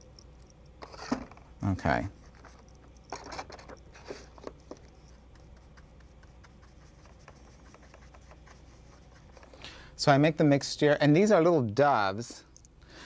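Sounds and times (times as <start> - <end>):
faint low hum: 0.0 - 13.0
paint scraping on palette: 3.5 - 9.6.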